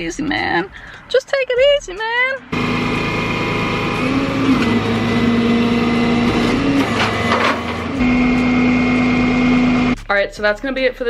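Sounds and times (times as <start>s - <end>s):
hydraulic hum with whine: 2.5s - 10.0s.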